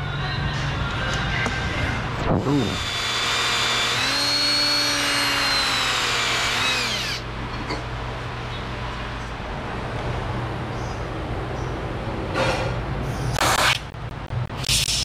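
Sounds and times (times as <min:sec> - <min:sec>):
cordless drill motor whining: 0:02.5 - 0:07.3.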